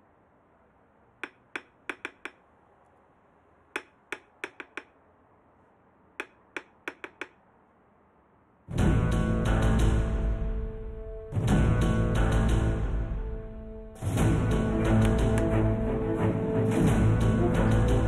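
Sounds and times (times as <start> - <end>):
fingers tapping on hard surface: 1.2 - 2.4, 3.8 - 5.0, 6.2 - 7.4.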